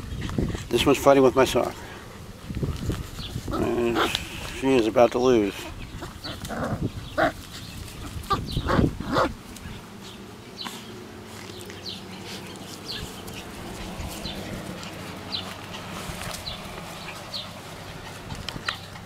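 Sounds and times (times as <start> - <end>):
birds chirping softly: 0.0 - 19.0
puppy growling and grunting: 3.5 - 4.5, 5.9 - 9.4.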